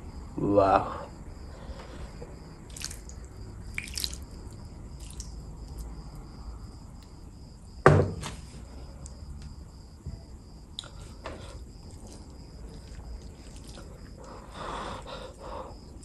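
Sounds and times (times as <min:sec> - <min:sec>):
gravy dripping: 0:02.3 - 0:06.4, 0:10.7 - 0:16.0.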